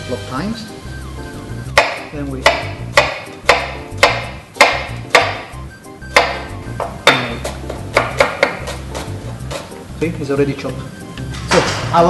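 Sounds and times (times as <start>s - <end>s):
background music: 0.0s - 12.0s
knife chopping on wooden board: 1.7s - 9.8s.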